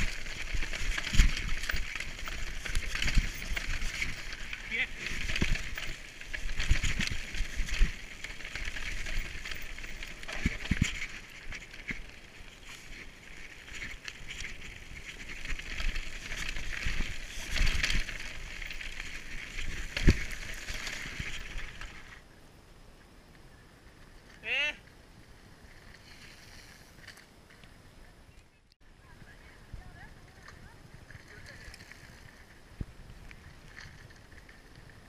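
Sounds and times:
tyres crunching over stones: 0:00.0 - 0:22.2
bike rattling: 0:00.0 - 0:22.3, 0:29.8 - 0:35.0
quiet outdoor background: 0:00.0 - 0:35.0.

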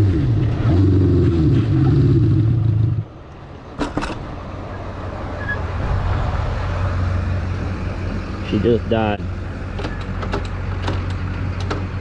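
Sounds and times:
faint rushing noise: 0:03.0 - 0:10.2.

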